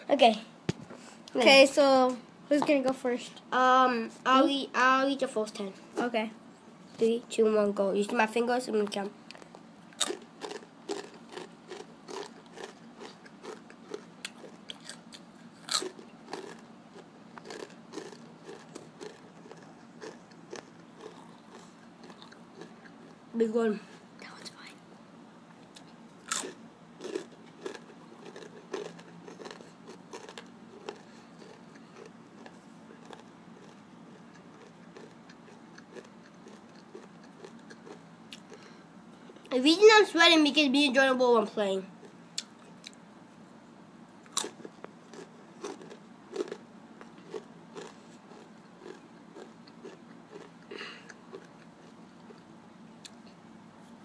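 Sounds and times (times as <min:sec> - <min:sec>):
person chewing crunchy chips: 0:09.3 - 0:23.2, 0:25.7 - 0:38.7, 0:44.2 - 0:53.3.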